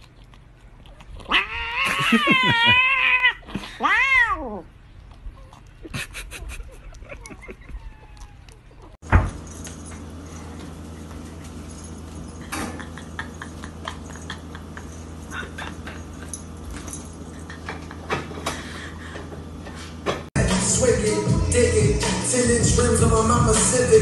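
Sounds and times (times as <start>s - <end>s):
low hum: 4.6s - 24.0s
dog and cat scuffling: 7.4s - 17.3s.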